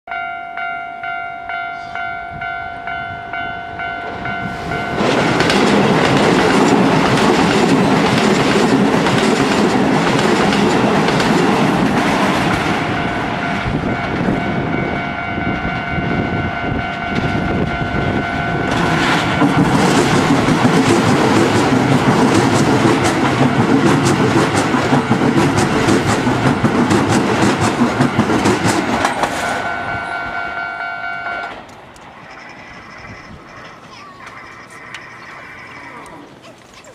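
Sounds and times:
level crossing warning bell: 0.1 - 7.2, 12.4 - 26.9, 27.5 - 31.7
electric trains passing: 0.1 - 36.9
wheels clacking over rail joints: 4.0 - 14.5, 18.3 - 30.6.

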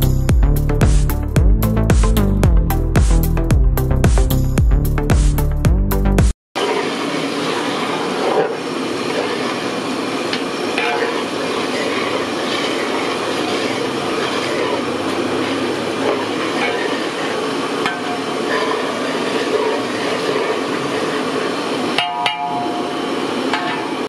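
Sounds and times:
metal ladle scraping a pot: 6.6 - 9.7, 10.4 - 22.6
steady simmering hiss: 6.6 - 24.0.

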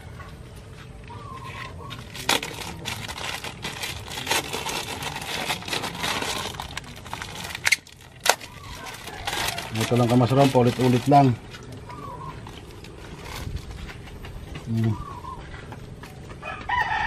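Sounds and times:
plastic bag crinkling: 2.0 - 11.7.

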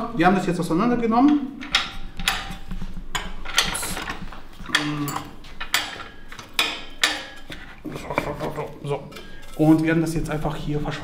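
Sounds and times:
metal knocks and clatters: 1.3 - 11.0.

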